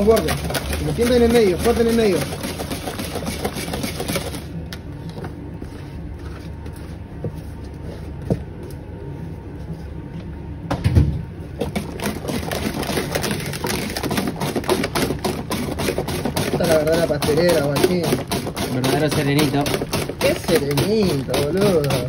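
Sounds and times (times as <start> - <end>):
whisk scraping metal pot: 0.0 - 4.6, 11.6 - 22.0
low mechanical hum: 0.0 - 22.0.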